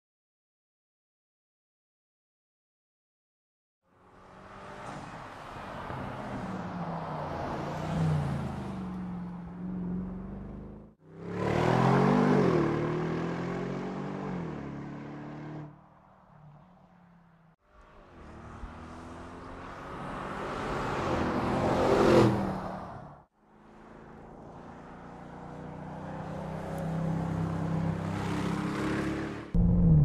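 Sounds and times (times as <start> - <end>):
car engine revving: 28.4 - 30.0.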